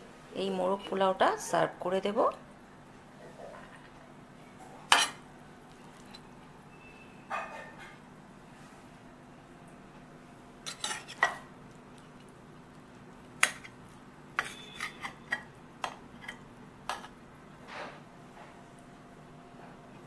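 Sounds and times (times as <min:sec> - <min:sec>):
spoon clinking on glass dish: 0:14.4 - 0:15.5.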